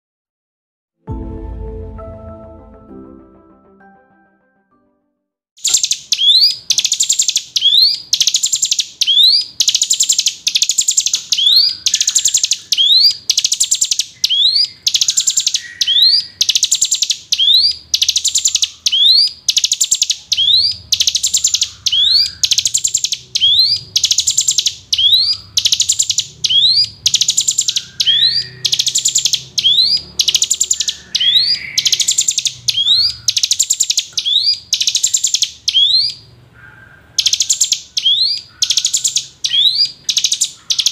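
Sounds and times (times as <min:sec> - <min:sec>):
bird calling with buzzy rattle: 0:05.6 - 0:40.9.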